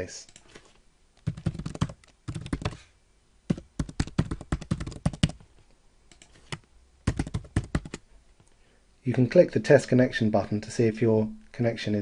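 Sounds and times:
typing on computer keyboard: 1.2s - 2.8s, 3.5s - 5.4s, 6.1s - 8.0s.

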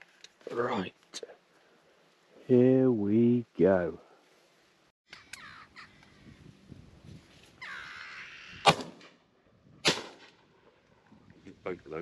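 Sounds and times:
crows cawing: 7.6s - 8.7s
shotgun shots: 8.6s - 9.1s, 9.8s - 10.4s.

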